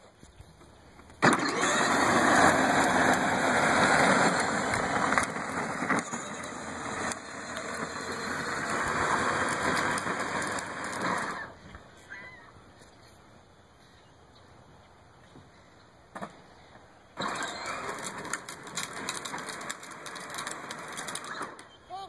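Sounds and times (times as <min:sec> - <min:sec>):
tires rolling on pavement: 0:00.6 - 0:11.9, 0:17.1 - 0:21.7
electric motors whirring: 0:01.2 - 0:11.6, 0:17.2 - 0:21.6.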